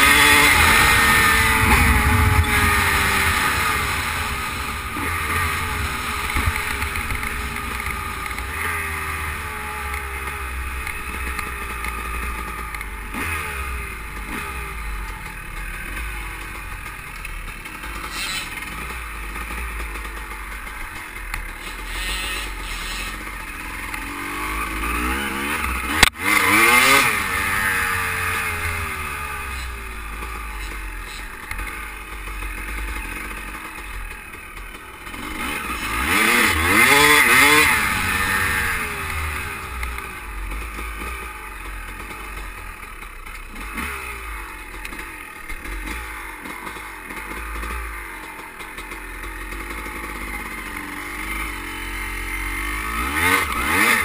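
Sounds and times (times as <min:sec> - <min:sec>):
motorcycle engine revving: 0:00.0 - 0:54.0
wind rumbling on microphone: 0:00.6 - 0:07.7.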